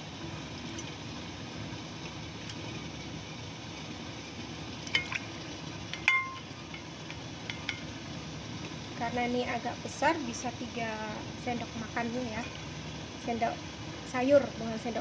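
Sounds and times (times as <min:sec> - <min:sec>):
steamer pot hissing: 0:00.0 - 0:15.0
ladle clinking on glass: 0:06.0 - 0:06.4.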